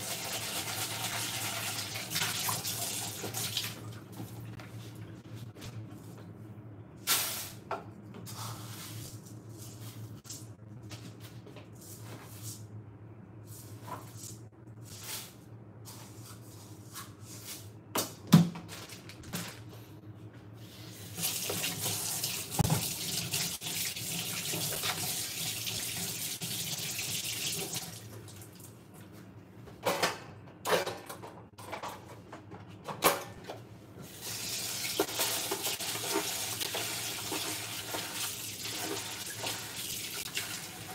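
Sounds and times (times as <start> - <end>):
water running into a sink: 0.0 - 3.8, 21.2 - 28.1, 34.2 - 40.9.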